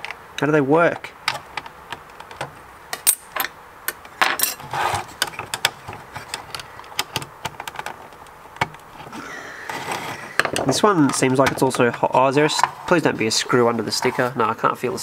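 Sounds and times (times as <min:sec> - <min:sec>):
scraping rustle: 0:04.4 - 0:06.6, 0:08.9 - 0:14.7
metal and plastic clicks: 0:05.2 - 0:08.9.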